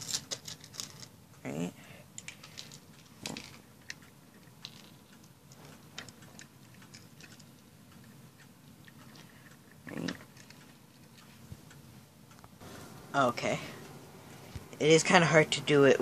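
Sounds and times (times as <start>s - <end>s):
plastic pieces clicking: 0.0s - 1.1s, 2.2s - 7.6s.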